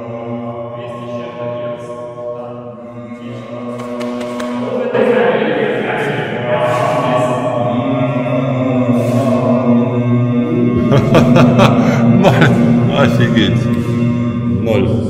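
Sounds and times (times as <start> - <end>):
voices chanting a hummed drone: 0.0 - 15.0.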